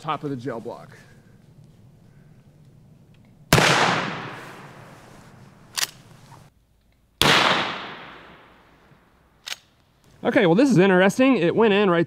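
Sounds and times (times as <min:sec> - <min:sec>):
rifle shots with echo: 0:03.5 - 0:05.0, 0:07.2 - 0:08.7.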